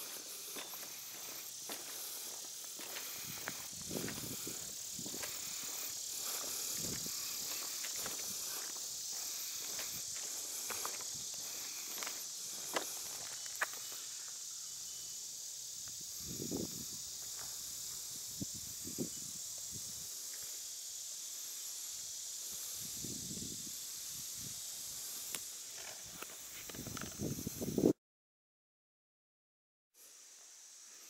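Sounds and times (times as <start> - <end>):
soft footsteps: 0.0 - 14.0
high-pitched insect chorus: 0.0 - 28.0, 30.0 - 31.0.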